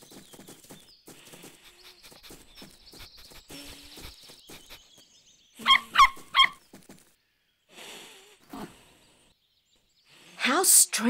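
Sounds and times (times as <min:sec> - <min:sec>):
cartoon puppy yipping: 0:05.6 - 0:06.6.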